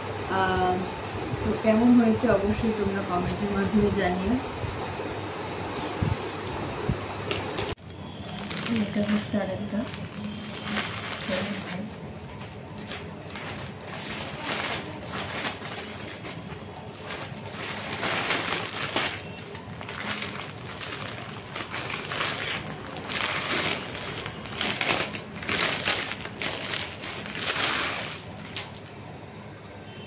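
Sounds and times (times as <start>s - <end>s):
plastic packaging crinkling: 7.3s - 28.9s.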